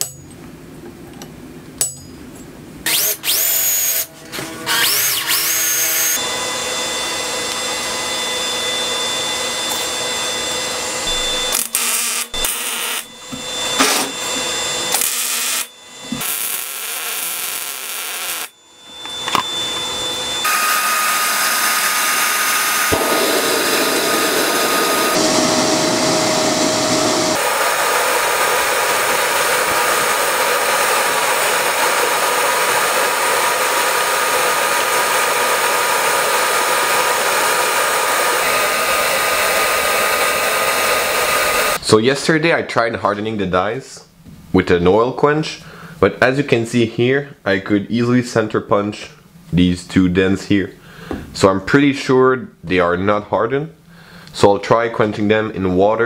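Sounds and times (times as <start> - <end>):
drill running into steel: 2.8 - 41.8
electric welding crackling: 11.0 - 13.2, 14.9 - 18.6.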